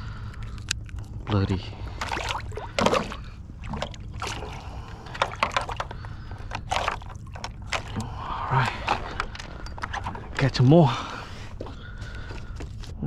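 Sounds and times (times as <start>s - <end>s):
fish splashing in water: 1.9s - 8.2s.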